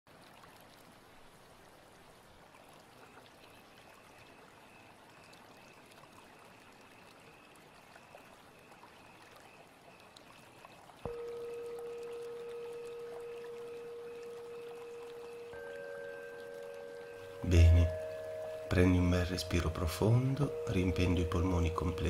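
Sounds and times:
trickling water: 0:00.1 - 0:22.0
faint high broken note: 0:11.1 - 0:22.0.

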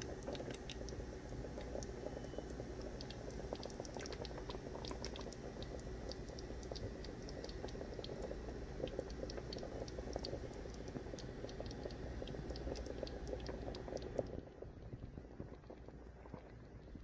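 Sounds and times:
sauce bubbling in a pot: 0:00.0 - 0:17.0.

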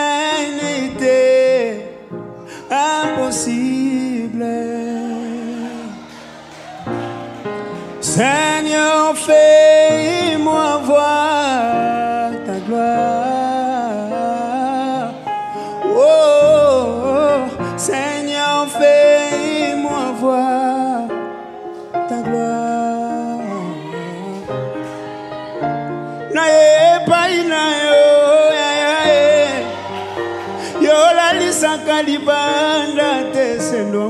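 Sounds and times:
man singing gospel: 0:00.0 - 0:06.2, 0:08.0 - 0:24.9, 0:26.1 - 0:34.0
band accompaniment: 0:24.2 - 0:34.0.

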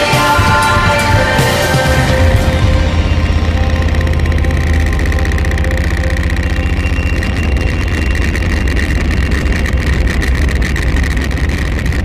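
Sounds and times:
scroll saw blade chatter: 0:03.6 - 0:12.0.

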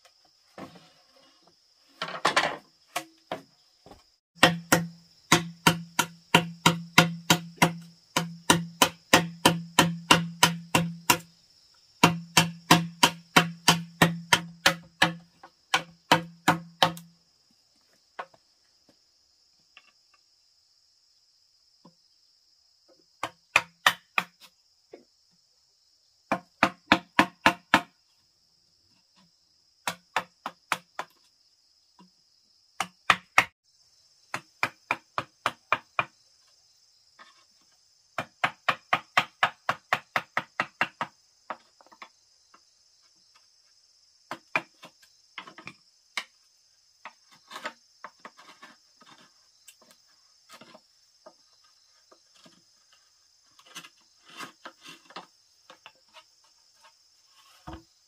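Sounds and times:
insects trilling: 0:00.0 - 0:58.0
mallet striking a chisel: 0:04.4 - 0:11.2, 0:12.0 - 0:17.1.

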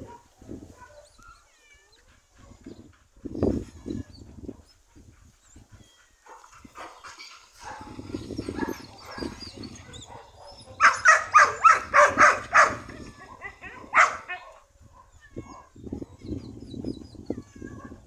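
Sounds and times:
dog barking: 0:00.0 - 0:01.0, 0:06.2 - 0:07.0, 0:10.0 - 0:12.9, 0:13.7 - 0:15.7.

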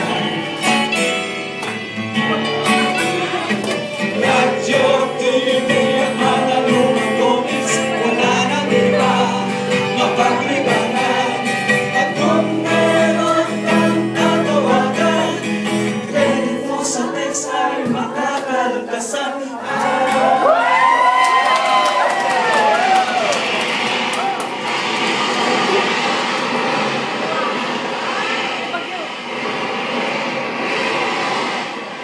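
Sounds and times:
sustained instrumental chords: 0:00.0 - 0:19.0
voices singing: 0:03.9 - 0:20.7.

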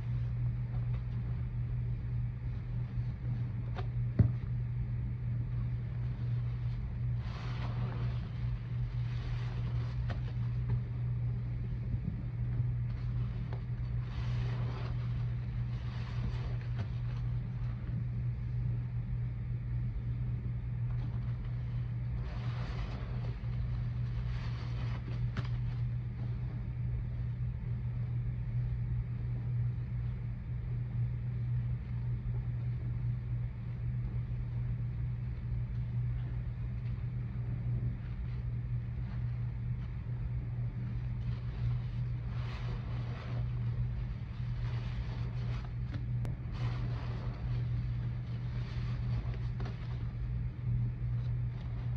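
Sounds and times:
steady low hum: 0:00.0 - 0:51.9
wet sponge squelches: 0:05.5 - 0:18.1, 0:20.9 - 0:26.6, 0:38.0 - 0:51.9.

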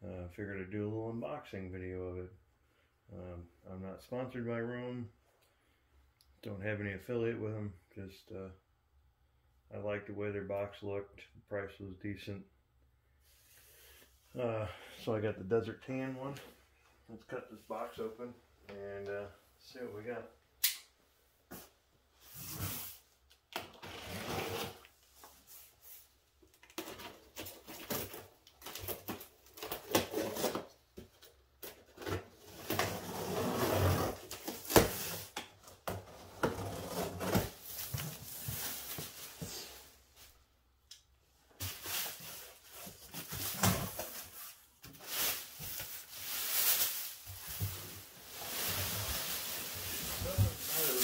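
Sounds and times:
cardboard scraping and tearing: 0:23.8 - 0:24.8, 0:27.5 - 0:30.7, 0:32.1 - 0:35.3, 0:36.1 - 0:38.1
plastic wrap rustling: 0:41.6 - 0:51.0.

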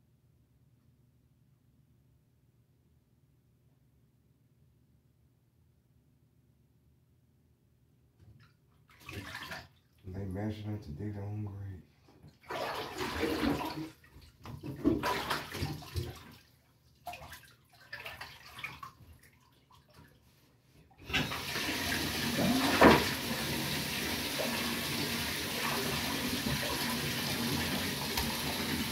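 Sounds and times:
bath water splashing: 0:08.4 - 0:10.0, 0:12.2 - 0:20.3, 0:21.0 - 0:28.9
water running steadily: 0:12.3 - 0:20.1, 0:21.0 - 0:28.9.

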